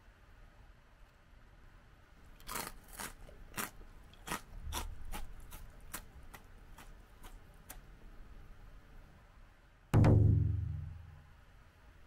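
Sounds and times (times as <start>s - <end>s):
rice cracker crunching: 2.3s - 7.8s.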